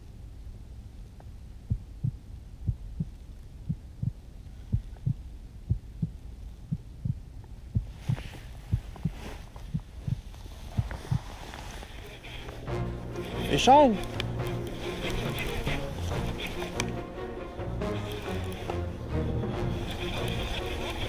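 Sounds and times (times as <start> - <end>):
low steady hum: 0.0 - 21.0
heartbeat thumps: 1.6 - 11.4
rustle: 7.4 - 12.6.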